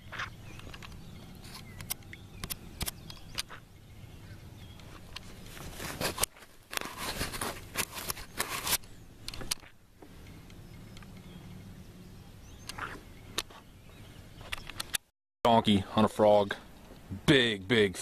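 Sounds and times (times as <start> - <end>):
rustling and bumping: 4.9 - 8.8.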